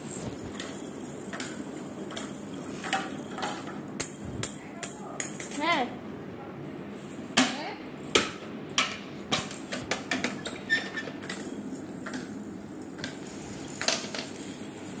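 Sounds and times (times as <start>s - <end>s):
plastic toy pieces clattering: 9.5s - 15.0s.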